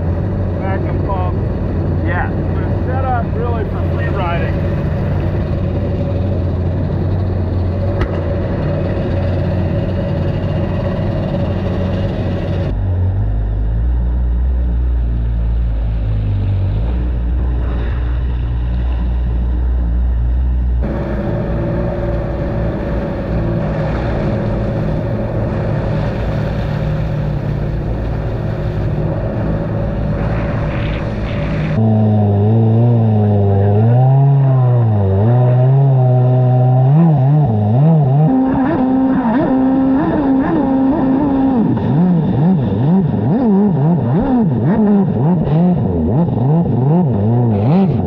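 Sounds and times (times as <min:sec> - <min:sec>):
jet ski engine running: 0:00.0 - 0:12.8, 0:20.8 - 0:48.0
water washing around hull: 0:20.9 - 0:31.8.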